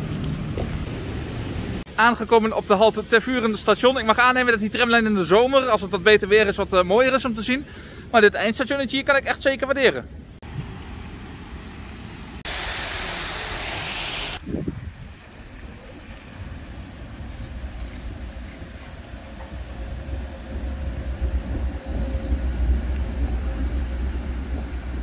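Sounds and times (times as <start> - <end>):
tram rumbling past on track: 0.0 - 1.9, 14.6 - 25.0
wind noise on microphone: 14.3 - 25.0.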